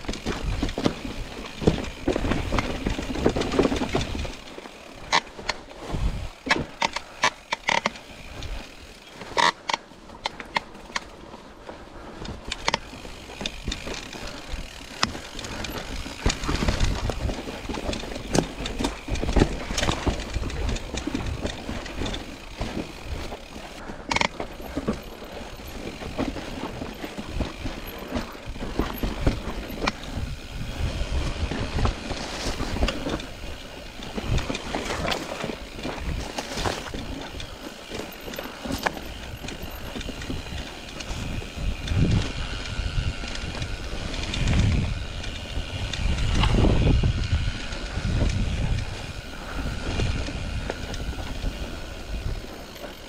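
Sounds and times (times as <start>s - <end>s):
bike clattering over rocks: 0.0s - 11.2s, 12.2s - 53.0s
wind rumble on microphone: 5.8s - 6.5s, 12.2s - 24.3s, 25.6s - 37.6s, 38.6s - 53.0s.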